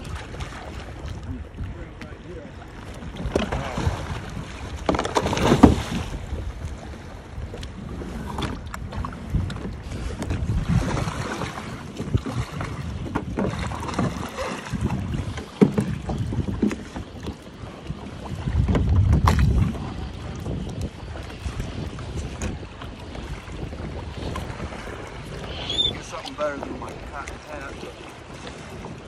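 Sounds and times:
water splashing and sloshing: 0.0s - 29.0s
wind buffeting microphone: 0.0s - 29.0s
kayak hull slap: 3.2s - 6.2s, 10.2s - 16.9s, 18.6s - 19.8s.

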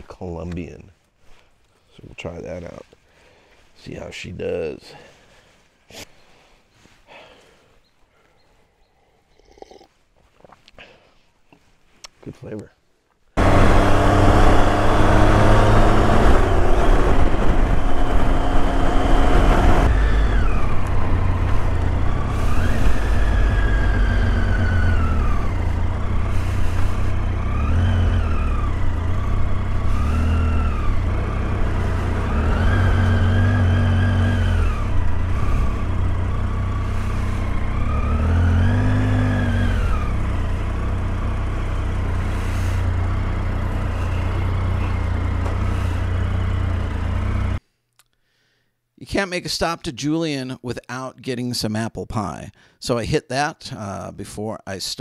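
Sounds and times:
motorcycle engine revving: 13.4s - 47.6s.

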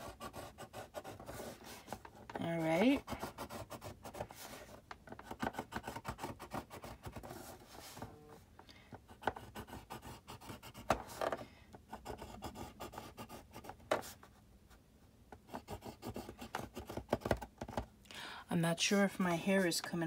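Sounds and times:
tool scratching paper on board: 0.0s - 4.6s, 5.2s - 7.6s, 9.1s - 11.3s, 11.9s - 13.8s, 15.4s - 17.4s.

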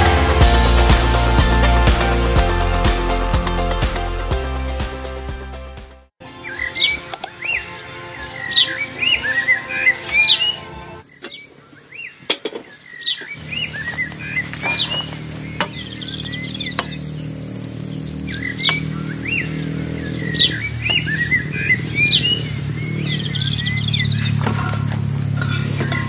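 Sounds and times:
birds chirping: 6.3s - 26.0s.

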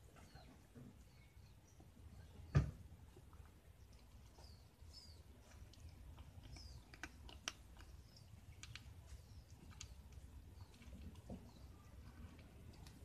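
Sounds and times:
kittens crunching dry kibble: 3.0s - 13.0s.

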